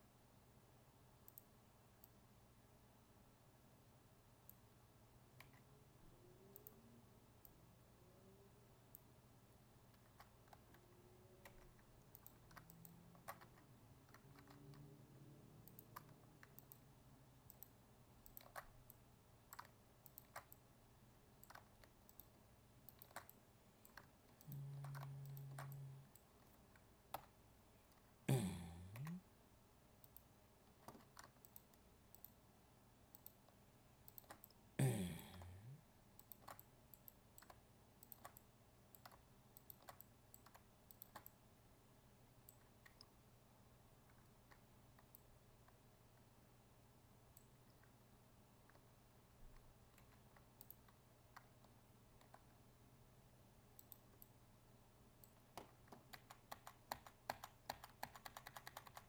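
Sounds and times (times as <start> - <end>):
low steady hum: 0.0 - 56.4
computer mouse clicking: 1.2 - 2.2, 4.4 - 5.7, 6.4 - 6.8, 9.8 - 15.0, 15.6 - 20.7, 21.4 - 28.2, 30.0 - 32.4, 33.0 - 34.6, 36.2 - 41.4, 42.4 - 43.2, 44.0 - 46.3, 48.6 - 52.6, 53.7 - 54.4, 55.2 - 59.0
keyboard keys clicking: 9.9 - 14.9, 17.5 - 20.6, 21.4 - 28.1, 30.0 - 32.4, 55.2 - 59.0.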